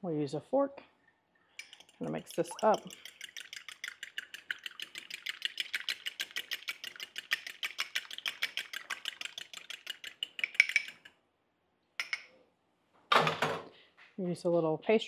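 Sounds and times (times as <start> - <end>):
fork whisking egg in a dish: 1.6 - 11.2.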